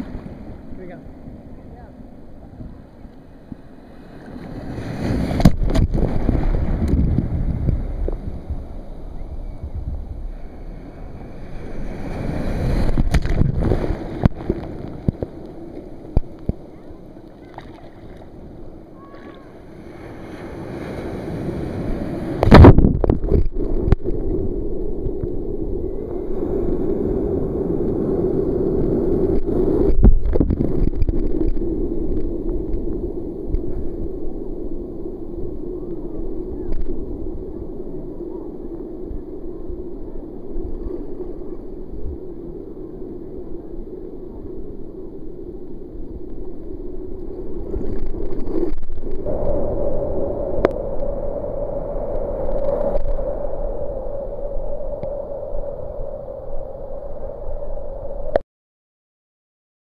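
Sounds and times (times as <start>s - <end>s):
surf washing and sloshing: 0.0s - 49.9s
water splash: 12.1s - 15.3s, 17.4s - 18.3s.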